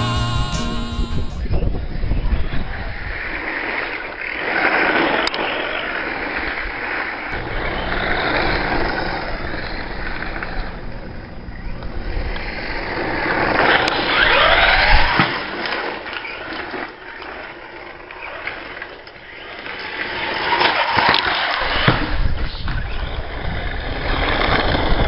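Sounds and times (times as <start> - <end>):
electric motor whining: 7.4 - 11.1.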